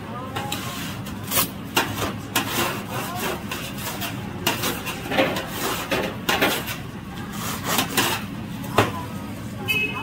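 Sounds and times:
knife sawing through crispy crust: 0:00.5 - 0:08.3.

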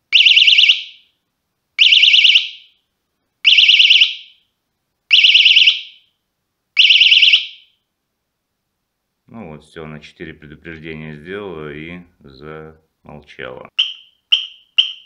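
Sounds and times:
bicycle alarm warbling beeps: 0:00.2 - 0:01.0, 0:01.8 - 0:02.7, 0:03.5 - 0:04.4, 0:05.1 - 0:06.1, 0:06.8 - 0:07.8, 0:13.7 - 0:15.0.

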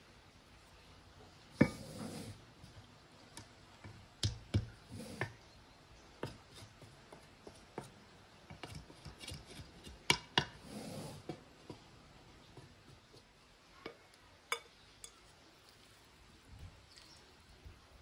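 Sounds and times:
spoon scraping rice in pot: 0:01.5 - 0:02.4
spoon tapping pot: 0:13.8 - 0:15.3.

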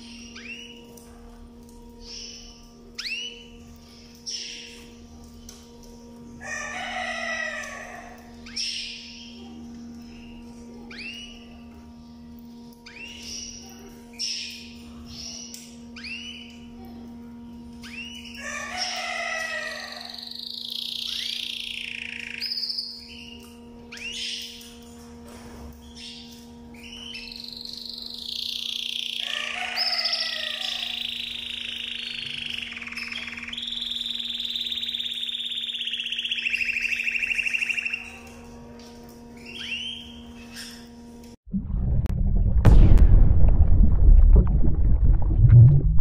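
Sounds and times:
canary singing trills: 0:00.0 - 0:01.0, 0:01.9 - 0:24.8, 0:25.8 - 0:38.6, 0:39.2 - 0:41.0
steady low hum: 0:36.7 - 0:46.0.

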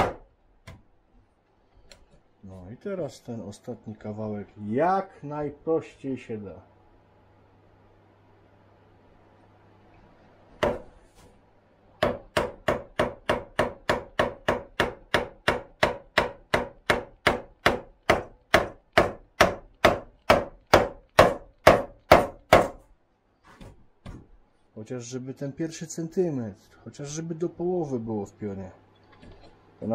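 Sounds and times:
mallet striking chisel: 0:00.0 - 0:00.8, 0:10.6 - 0:10.8, 0:12.0 - 0:22.8.

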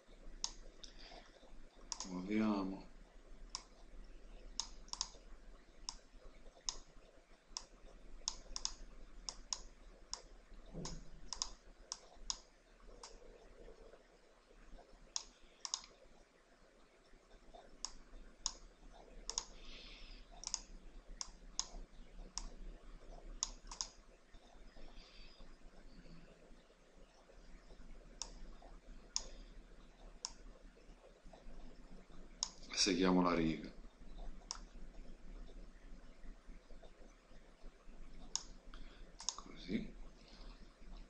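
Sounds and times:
low steady hum: 0:00.0 - 0:41.0
computer mouse clicks: 0:00.4 - 0:02.3, 0:03.5 - 0:05.2, 0:05.8 - 0:14.0, 0:14.8 - 0:16.0, 0:17.0 - 0:26.4, 0:27.1 - 0:30.5, 0:31.3 - 0:32.8, 0:34.0 - 0:35.6, 0:36.7 - 0:39.6.

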